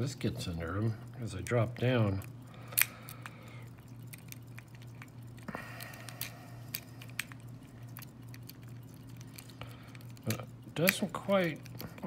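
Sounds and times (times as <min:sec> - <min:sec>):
steady low hum: 0:00.0 - 0:12.0
lock pick clicking in padlock: 0:02.7 - 0:03.3.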